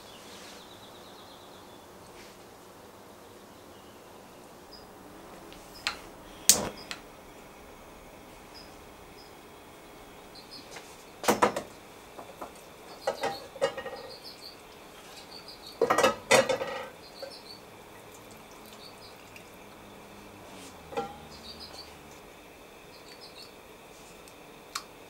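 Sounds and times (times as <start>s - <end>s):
faint chirps: 8.4s - 11.2s, 12.9s - 15.9s, 17.0s - 17.7s, 21.1s - 22.1s, 22.8s - 23.6s
pots and kitchenware clattering: 11.2s - 14.3s, 15.1s - 17.4s, 20.8s - 21.4s.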